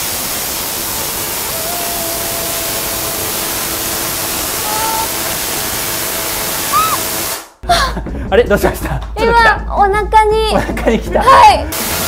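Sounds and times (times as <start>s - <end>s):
tesla coil sparks hissing: 0.0s - 7.6s, 11.7s - 12.0s.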